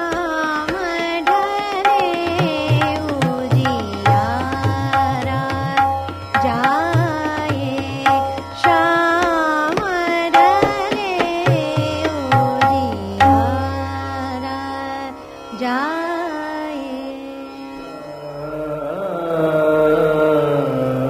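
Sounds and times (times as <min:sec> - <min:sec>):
tabla strokes: 0:00.0 - 0:14.1
tanpura drone: 0:00.0 - 0:21.0.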